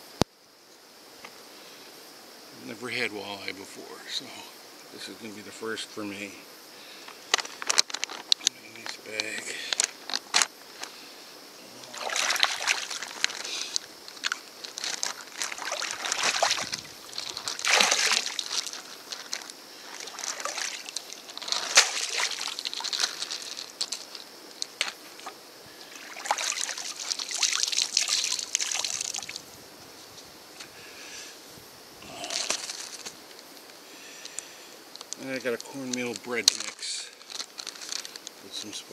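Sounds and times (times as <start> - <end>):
lake water sloshing and splashing: 11.8 - 24.2, 24.8 - 29.4
water dripping into lake: 12.0 - 29.4.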